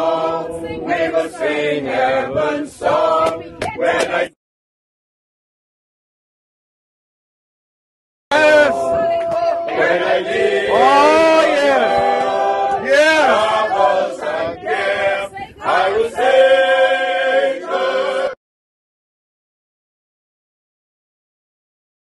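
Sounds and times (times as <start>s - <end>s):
group singing a hymn: 0.0s - 4.4s, 8.4s - 18.4s.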